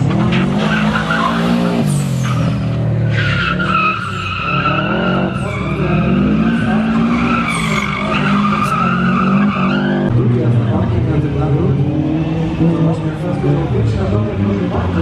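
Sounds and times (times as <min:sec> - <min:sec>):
car engine revving hard: 0:00.0 - 0:03.8, 0:04.4 - 0:15.0
tyre squeal: 0:00.6 - 0:10.1.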